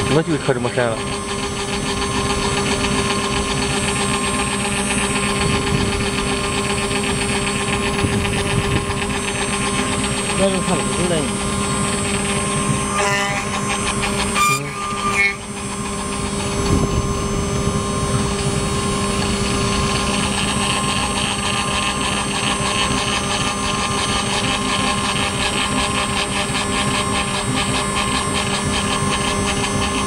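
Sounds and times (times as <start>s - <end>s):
engraving machine motor hum: 0.0s - 30.0s
bit rasping into metal: 9.0s - 16.5s.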